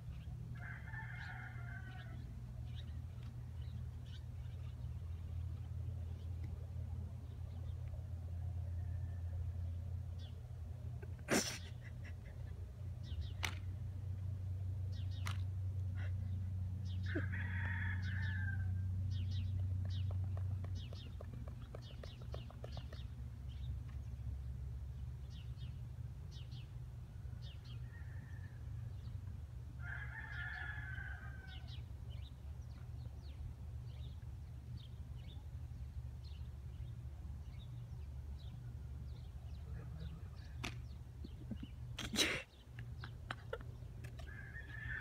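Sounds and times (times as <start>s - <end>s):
low steady rumble: 0.0s - 30.2s, 30.8s - 42.0s
birds chirping: 14.9s - 28.2s, 30.1s - 45.0s.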